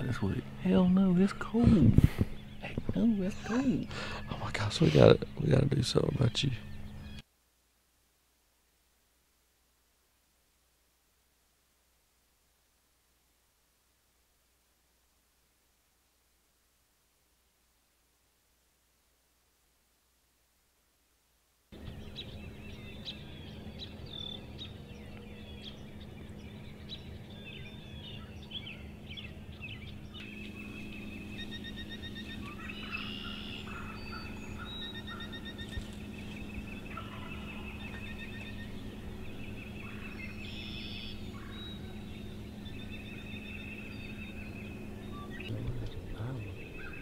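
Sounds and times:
songbirds chirping and trilling: 0.0 - 7.3, 21.7 - 47.0
steady low hum: 0.0 - 8.5, 21.7 - 47.0
turkeys gobbling: 31.4 - 38.6.

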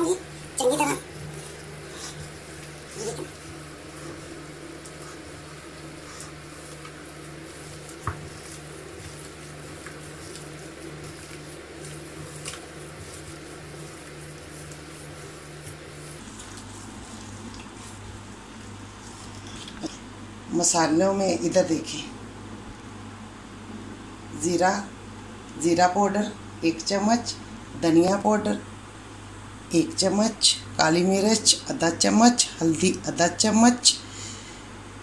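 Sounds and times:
potatoes squishing by hand: 0.0 - 20.1.

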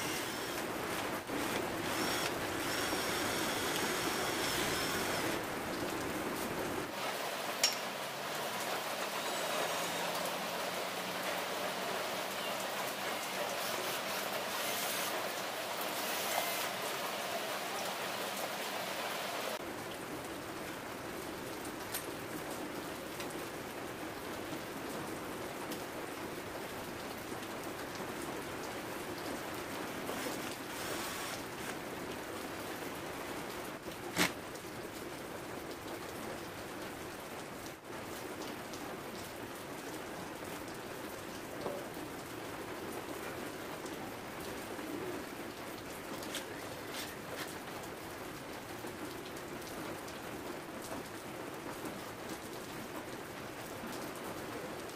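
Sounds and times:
rain hissing: 0.0 - 20.1, 28.0 - 34.8.

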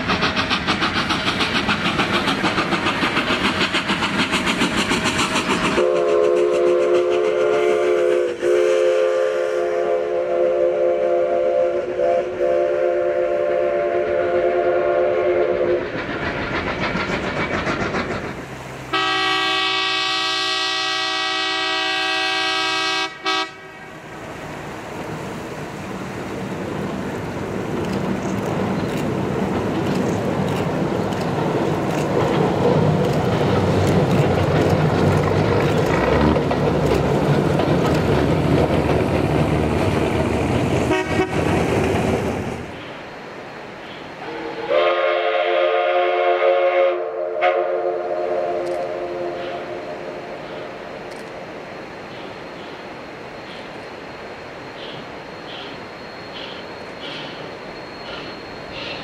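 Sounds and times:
steam locomotive chuffing: 0.0 - 43.2, 43.9 - 59.0.

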